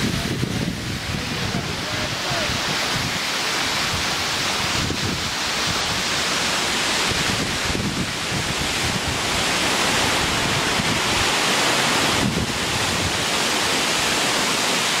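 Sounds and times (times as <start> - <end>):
wind buffeting microphone: 0.0 - 14.3
waterfall rushing: 0.0 - 15.0.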